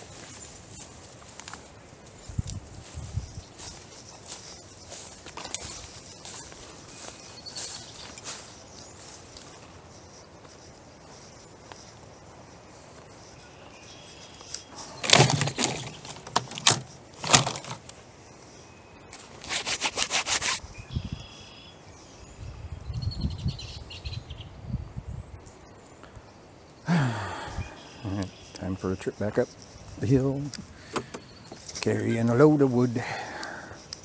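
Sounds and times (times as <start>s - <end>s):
logs dropped into wooden cart: 14.8s - 17.9s.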